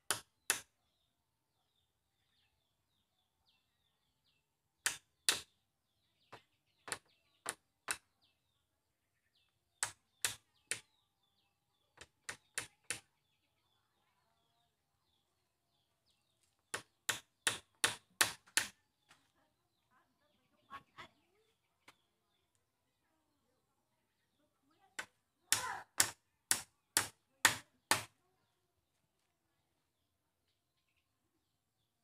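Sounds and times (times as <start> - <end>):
hammer striking bamboo: 0.0 - 0.7, 4.8 - 5.5, 9.8 - 10.9, 16.8 - 18.8, 25.5 - 28.1.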